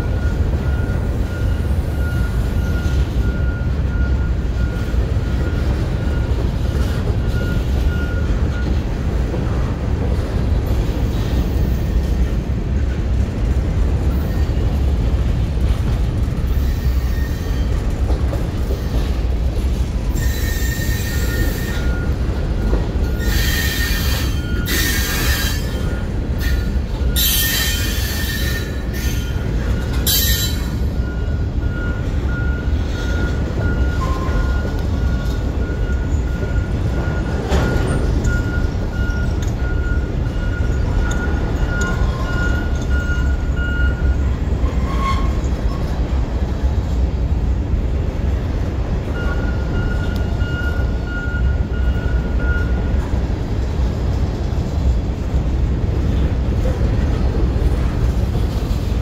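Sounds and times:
freight train rumbling past: 0:00.0 - 0:59.0
high-pitched wheel squeal: 0:16.5 - 0:17.7, 0:20.1 - 0:22.1, 0:23.1 - 0:30.9, 0:44.6 - 0:45.9.

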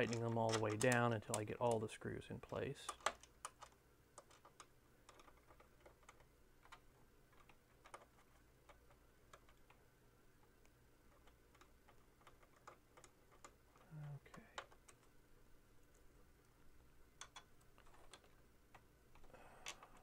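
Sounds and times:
low room hum: 0:00.0 - 0:20.0.

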